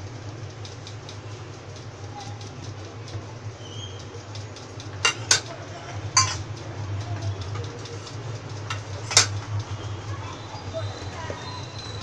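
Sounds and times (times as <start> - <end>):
steady low hum: 0.0 - 12.0
steel kitchenware clinking: 5.0 - 6.5, 8.0 - 9.5.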